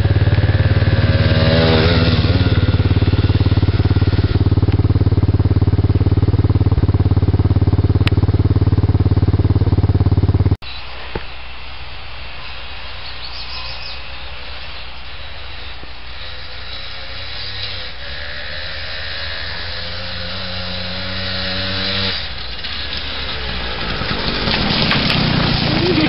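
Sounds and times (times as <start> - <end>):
atv engine revving: 0.0 - 10.6, 13.4 - 26.0.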